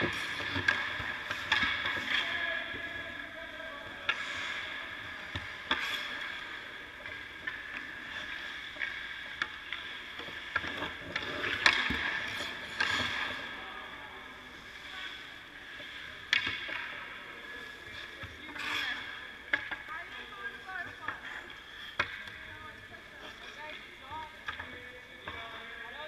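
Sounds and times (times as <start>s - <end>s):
pucks clacking off sticks: 0.0s - 2.4s, 4.0s - 13.6s, 15.8s - 17.2s, 17.9s - 22.4s, 23.7s - 25.5s
skate blades scraping on ice: 0.0s - 2.4s, 4.0s - 22.2s.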